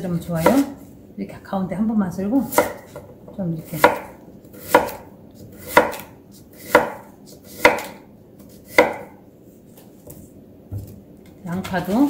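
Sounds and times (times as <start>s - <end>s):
knife slicing radish: 0.2s - 0.9s, 2.5s - 3.0s, 3.6s - 9.2s.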